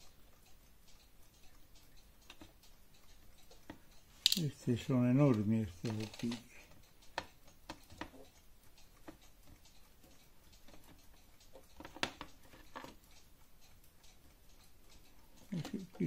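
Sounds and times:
small metal parts clicking: 4.2 - 4.5.

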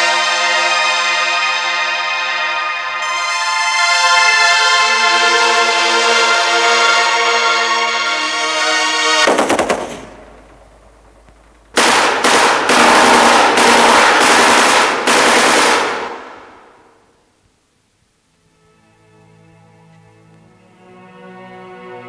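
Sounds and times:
orchestral film music: 0.0 - 9.3, 18.4 - 22.0
machine-gun fire: 9.3 - 17.0.

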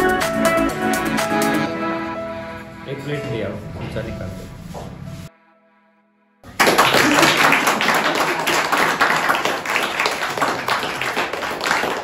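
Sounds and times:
group of people clapping: 6.4 - 12.0.

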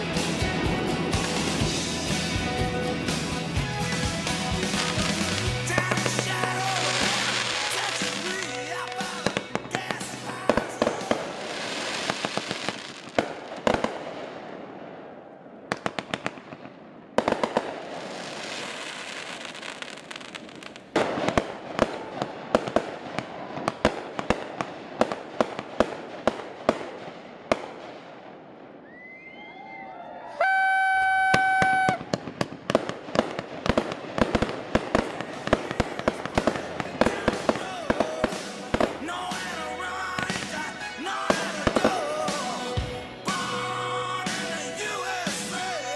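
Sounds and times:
fireworks crackling pops: 3.0 - 14.6, 15.7 - 28.2, 30.4 - 43.6
sharp firework bangs: 15.7 - 28.0, 31.2 - 39.6.

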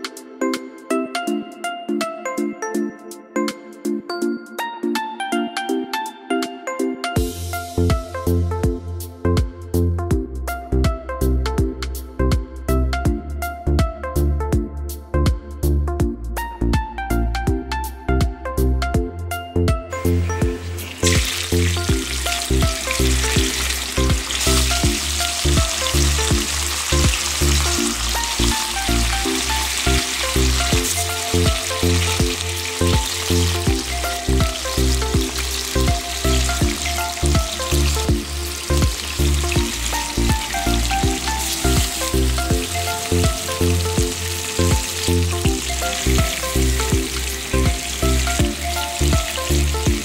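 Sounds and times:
background music: 0.0 - 50.0
fish sizzling in hot oil: 20.1 - 50.0.

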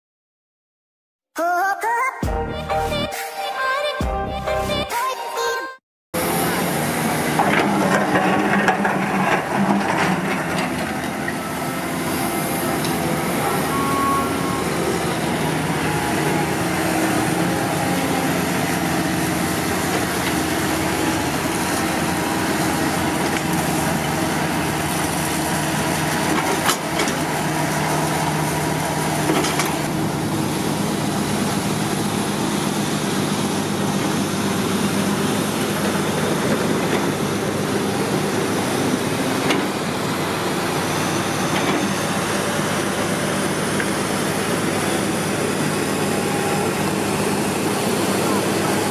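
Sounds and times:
excavator diesel engine running: 6.2 - 48.9
bucket digging dirt: 7.2 - 12.0.

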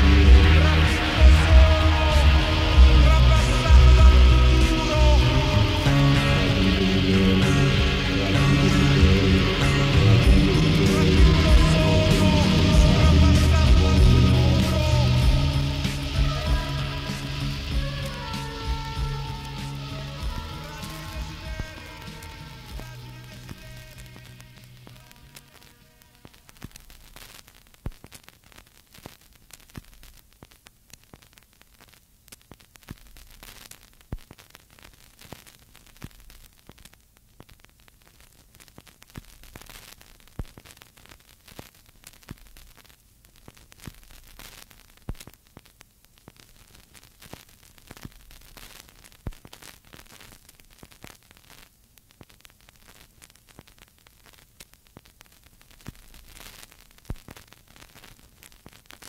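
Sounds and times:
low hum: 0.0 - 19.4
tape hiss: 0.0 - 59.0.

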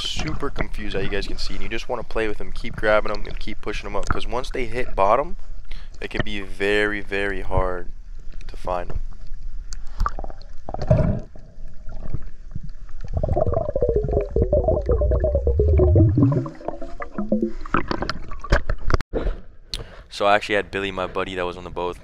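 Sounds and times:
low gurgling rumble: 10.1 - 18.6
underwater clicks and knocks: 12.0 - 19.0.

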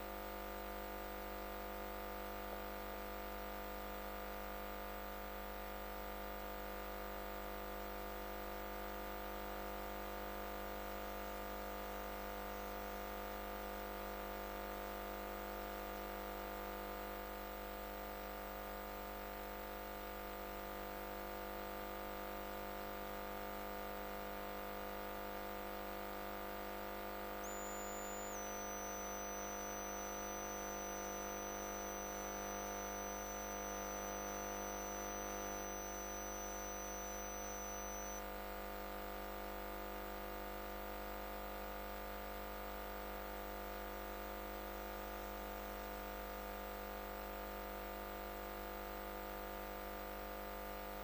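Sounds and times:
faint high whine: 0.0 - 51.0.

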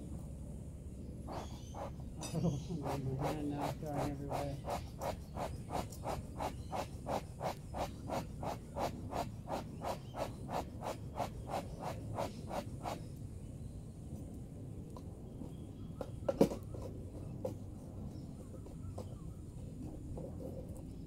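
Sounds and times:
rhythmic scraping strokes: 1.3 - 13.0.

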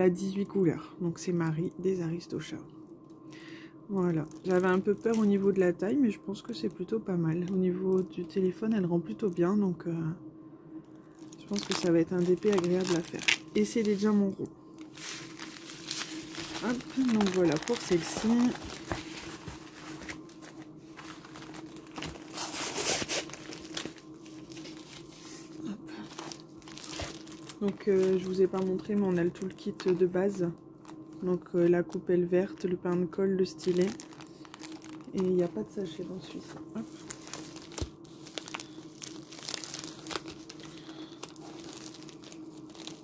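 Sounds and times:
steady low hum: 0.0 - 43.0
plastic packaging crinkling: 4.1 - 5.8, 11.0 - 32.6, 33.4 - 43.0.

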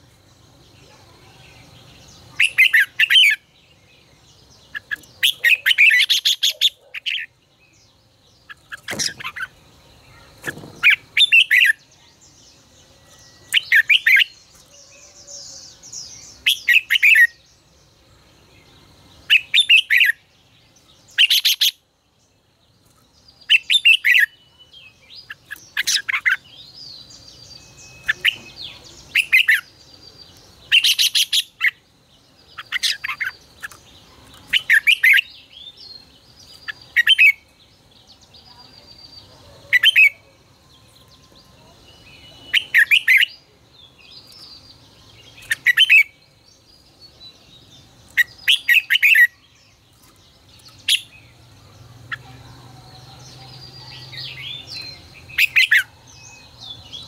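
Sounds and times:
bird singing whistled phrases: 27.6 - 29.7, 41.9 - 43.4, 48.2 - 49.6.

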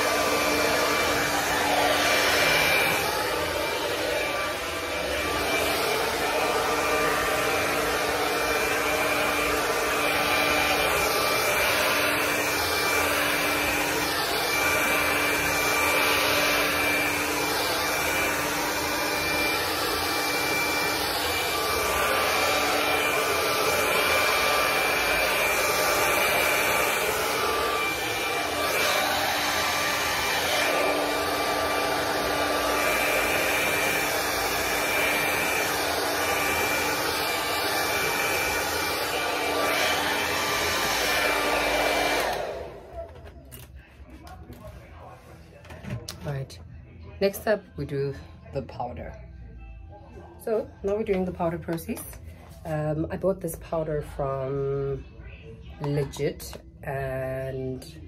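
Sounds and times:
hair dryer running: 0.0 - 43.4.

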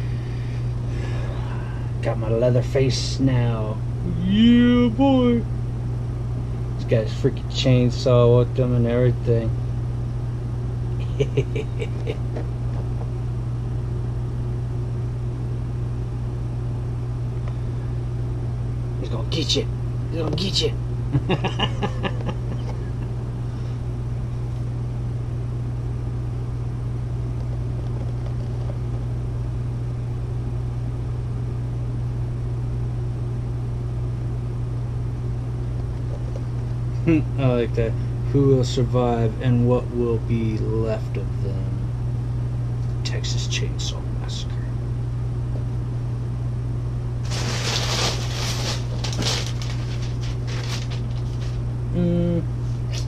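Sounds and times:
low hum: 0.0 - 53.0
packaging rustling and crinkling: 47.2 - 51.6.

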